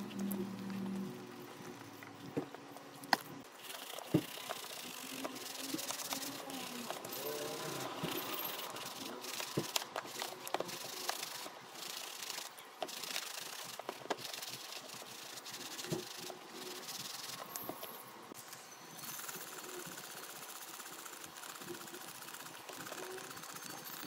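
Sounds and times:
brush scrubbing a sneaker: 0:03.5 - 0:17.8, 0:19.4 - 0:23.8.

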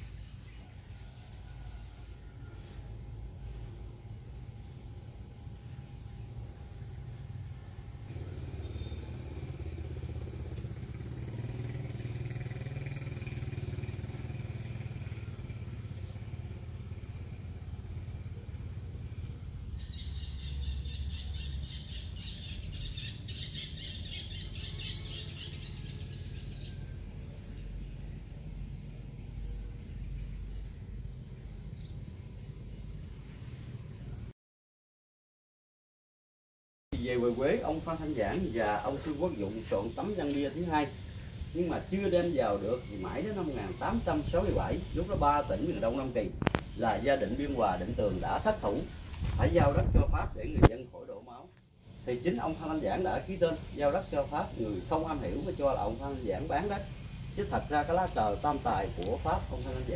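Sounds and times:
low steady rumble: 0:02.3 - 0:21.7
birds chirping: 0:03.1 - 0:34.3, 0:37.0 - 0:59.9.

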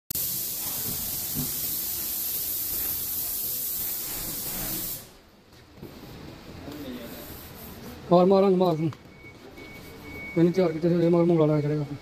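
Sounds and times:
compressed air hissing: 0:00.1 - 0:05.3.

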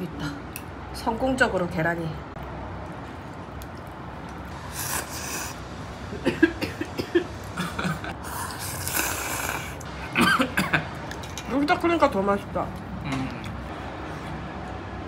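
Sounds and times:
slurping noodles: 0:04.6 - 0:05.6, 0:08.2 - 0:09.8.

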